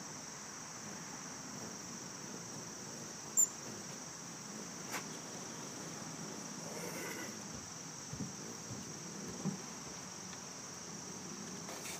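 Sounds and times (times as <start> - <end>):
crickets trilling: 0.0 - 11.9
faint soft knocks: 7.5 - 9.7.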